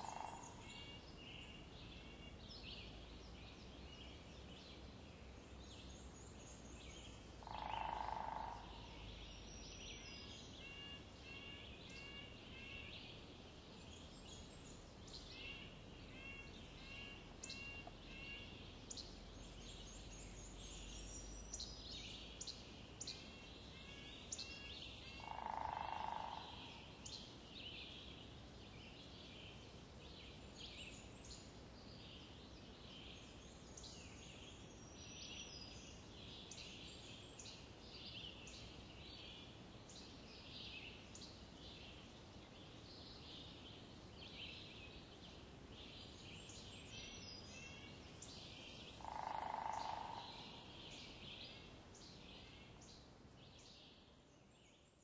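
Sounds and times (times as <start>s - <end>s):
repeated bird calls: 7.4s - 13.0s, 23.7s - 27.1s, 48.6s - 51.2s.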